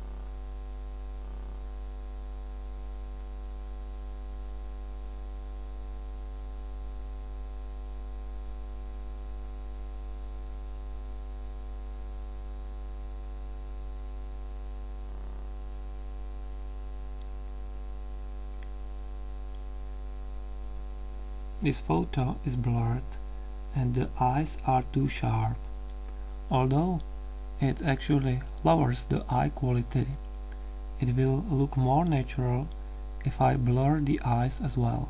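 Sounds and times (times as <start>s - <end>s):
electrical mains hum: 0.0s - 35.0s.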